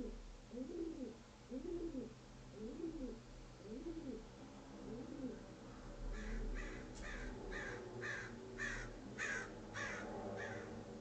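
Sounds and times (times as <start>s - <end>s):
crow cawing: 6.1s - 10.8s.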